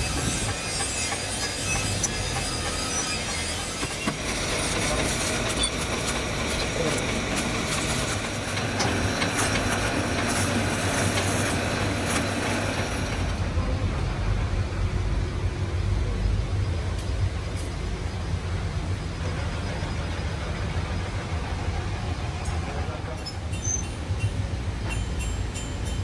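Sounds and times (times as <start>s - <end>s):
lathe cutting steel: 0.0s - 13.4s.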